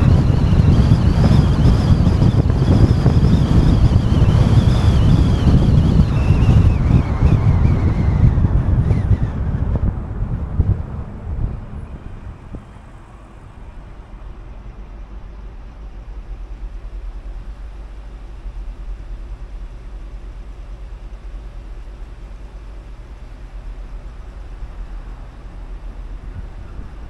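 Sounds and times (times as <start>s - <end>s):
car road and engine rumble: 0.0s - 27.0s.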